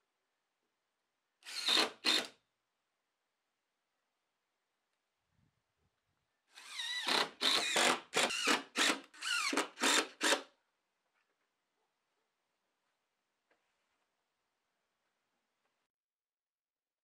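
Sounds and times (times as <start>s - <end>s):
cordless drill driving screws: 1.4s - 2.3s, 6.6s - 10.5s.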